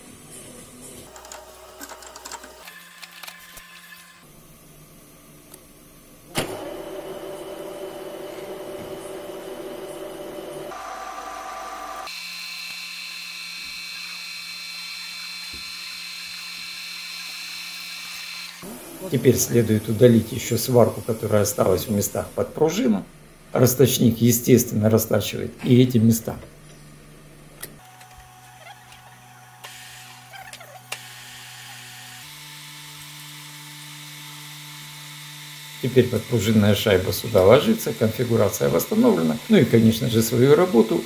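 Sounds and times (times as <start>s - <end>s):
boring machine spindle humming: 1.1s - 23.9s, 25.8s - 41.0s
boring machine spindle whine: 6.4s - 22.4s
cutter squeaking on metal: 28.3s - 31.9s.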